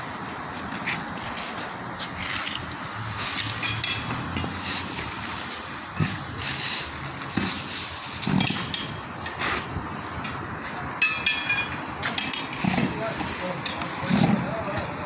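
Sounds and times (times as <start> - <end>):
metal scraping on wheel: 0.8 - 9.8
ringing metal clang: 11.0 - 12.5.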